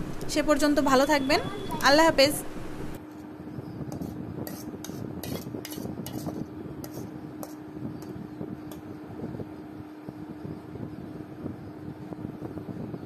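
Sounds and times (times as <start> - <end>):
metal spatula scraping a pan: 3.9 - 7.6.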